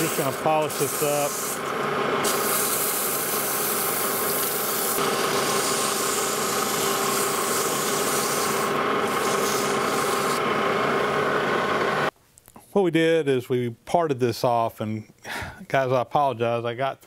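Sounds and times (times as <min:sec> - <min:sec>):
emery cloth hissing on spinning metal: 0:00.0 - 0:10.4
metal lathe humming: 0:00.0 - 0:12.1.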